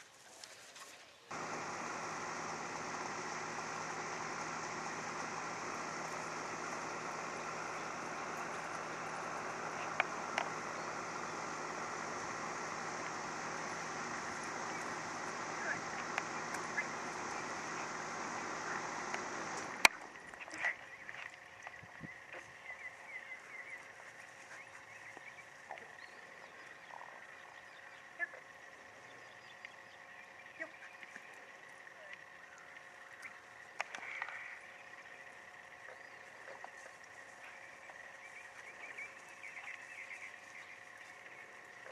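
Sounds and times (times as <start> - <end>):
outdoor background hiss: 0.0 - 20.4
faint high hum: 1.3 - 41.9.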